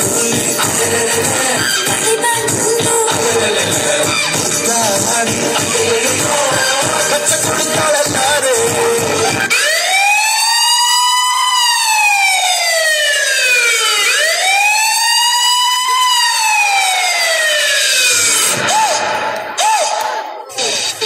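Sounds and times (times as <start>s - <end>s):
dance music: 0.0s - 11.0s, 11.6s - 21.0s
siren wail sound effect: 9.2s - 20.0s.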